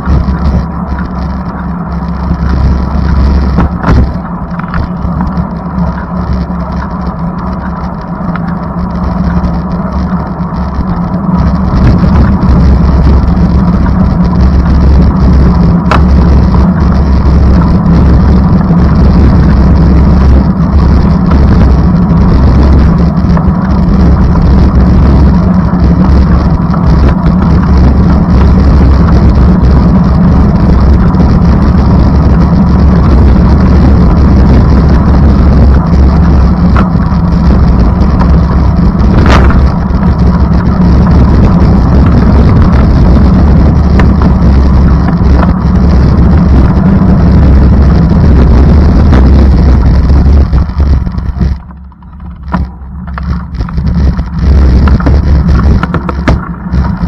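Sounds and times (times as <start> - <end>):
vehicle engine rumble from inside: 0.0 - 57.0.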